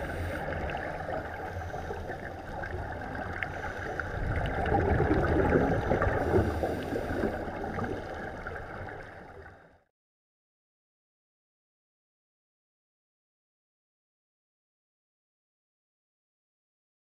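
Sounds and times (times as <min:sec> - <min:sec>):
underwater bubbling and gurgling: 0:00.0 - 0:09.9.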